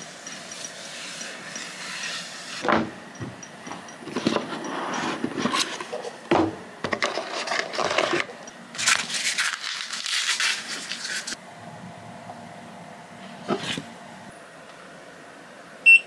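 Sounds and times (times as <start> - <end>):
cardboard rustling and scraping: 4.1 - 6.2, 6.9 - 11.4, 13.4 - 13.9.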